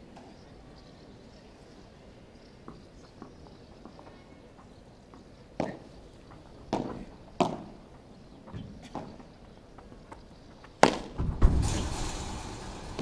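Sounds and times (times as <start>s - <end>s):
ball bouncing off court and walls: 10.8s - 13.0s
rackets striking ball: 10.8s - 13.0s.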